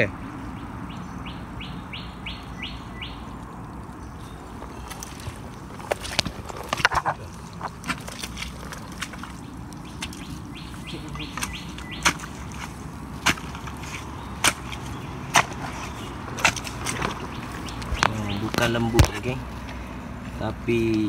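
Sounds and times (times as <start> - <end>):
high bird chirps: 0.4 - 3.4, 9.3 - 12.4
boots sucking free of mud: 4.5 - 19.8.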